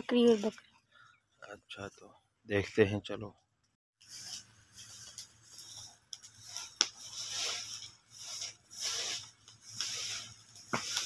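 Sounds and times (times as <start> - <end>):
leaves swept across dirt: 4.0 - 11.0.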